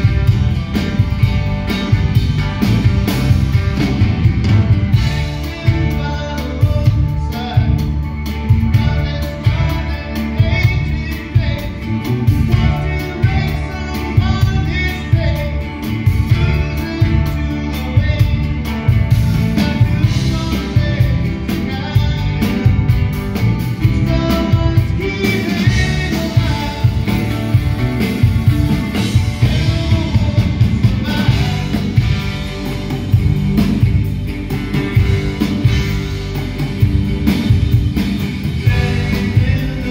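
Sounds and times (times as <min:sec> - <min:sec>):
acoustic guitars strumming: 0:00.0 - 0:39.9
drum kit: 0:00.0 - 0:39.9
electric bass: 0:00.0 - 0:39.9
keyboard: 0:00.0 - 0:39.9
man singing lead vocal: 0:05.1 - 0:22.8, 0:23.7 - 0:27.7, 0:29.0 - 0:32.3, 0:38.6 - 0:39.9.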